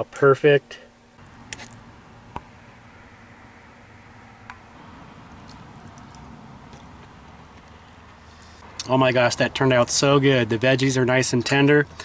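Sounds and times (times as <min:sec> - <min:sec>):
soft chewing: 0:05.4 - 0:08.6.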